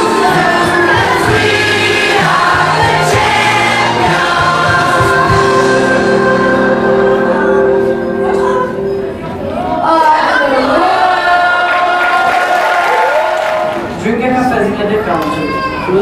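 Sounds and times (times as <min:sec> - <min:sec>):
children singing: 0:00.0 - 0:08.6.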